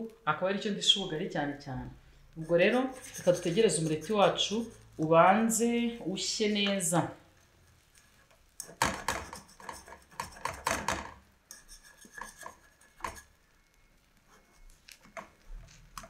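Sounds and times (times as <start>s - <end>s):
metal fork scraping frying pan: 2.4s - 5.0s, 8.6s - 10.8s, 11.5s - 13.4s.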